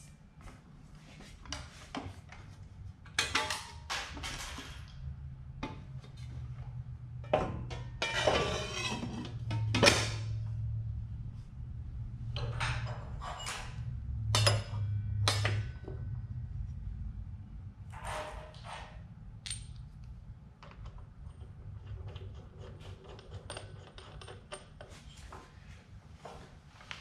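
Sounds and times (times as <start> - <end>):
saw blade clinking and scraping: 7.8 - 9.7.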